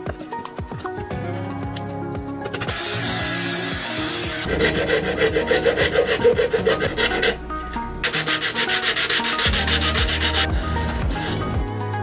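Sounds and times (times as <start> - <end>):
hand rubbing on plywood: 8.0 - 10.5.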